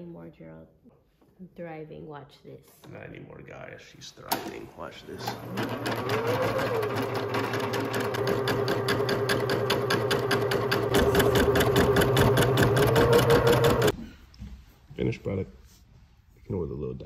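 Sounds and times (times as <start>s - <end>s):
embroidery machine stitching: 4.3s - 13.9s.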